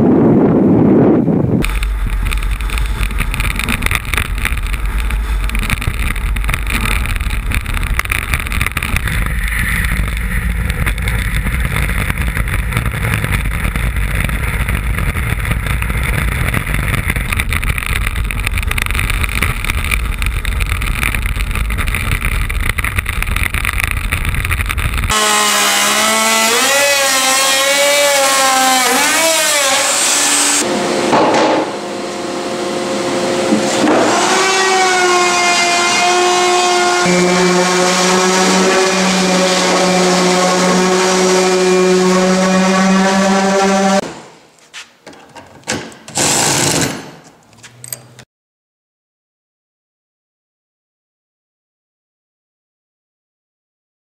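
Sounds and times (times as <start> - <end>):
wind buffeting microphone: 0.0 - 25.1
electric router cutting plywood: 25.1 - 44.0.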